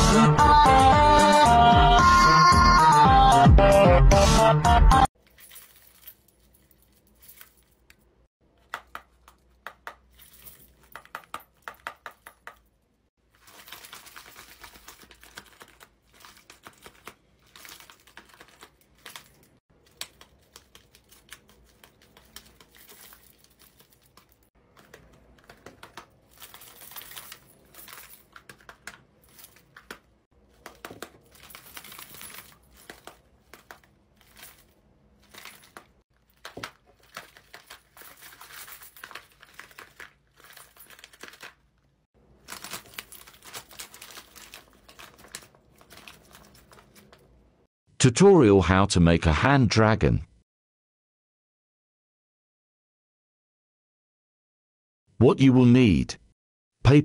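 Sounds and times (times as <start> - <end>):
paper crinkling: 13.2 - 47.4.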